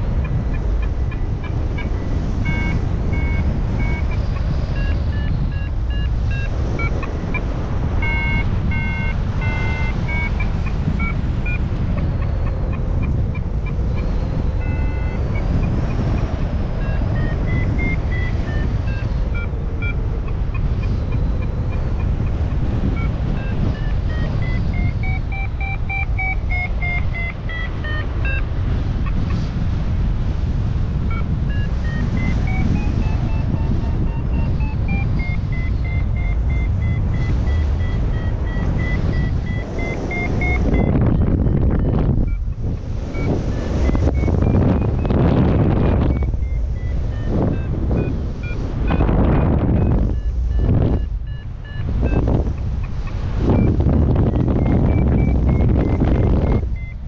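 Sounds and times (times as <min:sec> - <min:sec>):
variometer short beeps: 0:00.0 - 0:29.5, 0:31.0 - 0:57.0
wind rush on microphone: 0:00.0 - 0:57.0.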